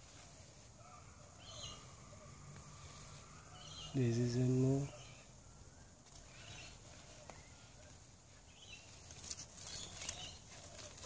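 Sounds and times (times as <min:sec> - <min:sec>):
faint bird chirps: 0:00.0 - 0:11.0
hands digging through soil: 0:06.0 - 0:11.0.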